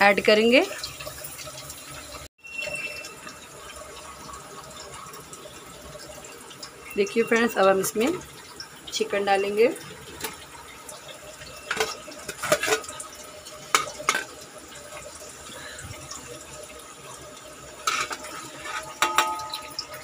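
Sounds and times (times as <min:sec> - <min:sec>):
chicken sizzling in oil: 0:00.0 - 0:20.0
knocks against a pot: 0:19.0 - 0:19.7.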